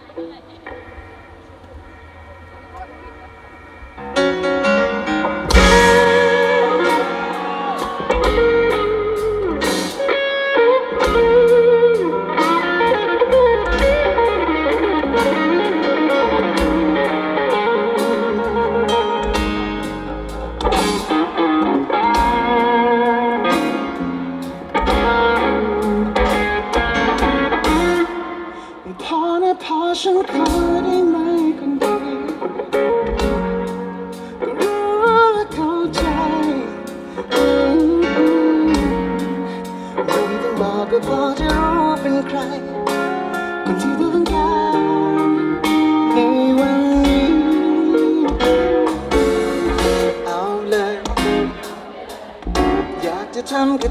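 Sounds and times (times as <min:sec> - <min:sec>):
drums: 0:00.0 - 0:53.9
electric guitar lead: 0:00.0 - 0:53.9
live band playing: 0:00.0 - 0:53.9.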